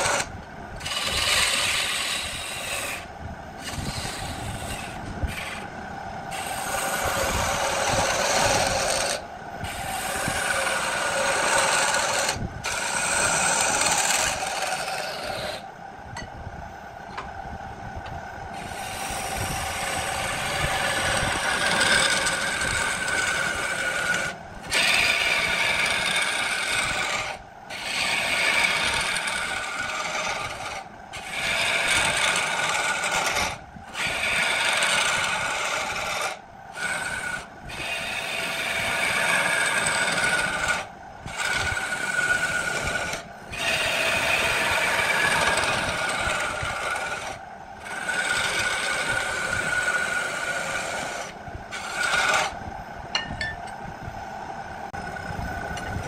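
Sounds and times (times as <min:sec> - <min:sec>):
lathe tool shaving wood: 0:00.0 - 0:15.7, 0:18.5 - 0:52.6.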